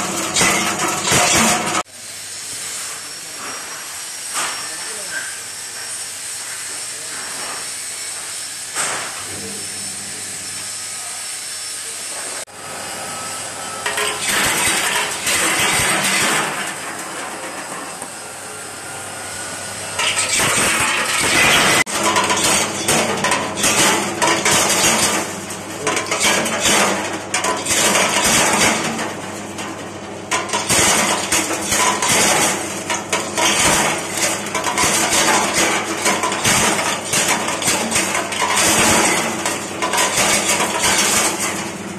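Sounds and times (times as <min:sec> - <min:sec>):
nuts and shells rattling and cracking: 0:13.8 - 0:17.7, 0:20.0 - 0:41.8.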